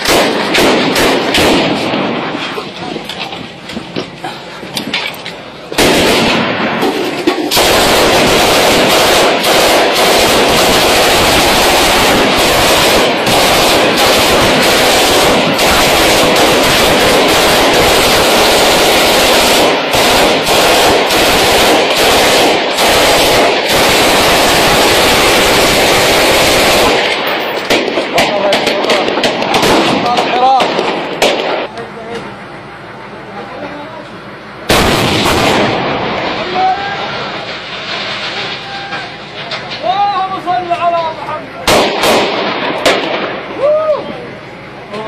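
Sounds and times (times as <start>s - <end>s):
machine gun firing bursts: 0.0s - 2.3s, 5.8s - 31.7s, 34.7s - 36.0s, 41.7s - 43.3s.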